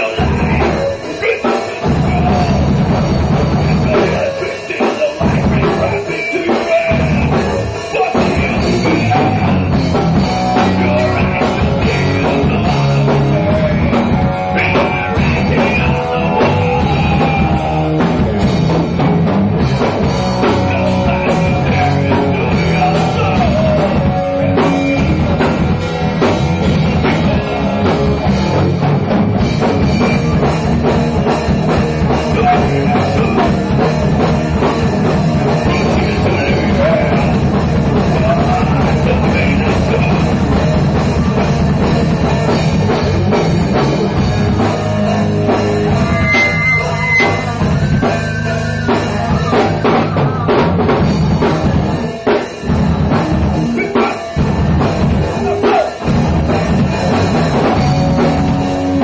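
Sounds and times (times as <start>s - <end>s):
drum kit and cymbals: 0.0s - 59.0s
rock band playing live: 0.0s - 59.0s.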